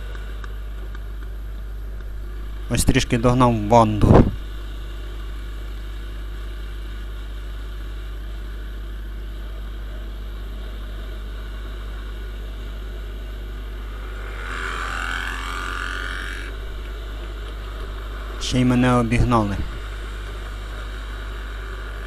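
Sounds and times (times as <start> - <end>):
motorcycle engine cruising: 13.4 - 18.4
motorcycle overtaking: 13.4 - 18.4.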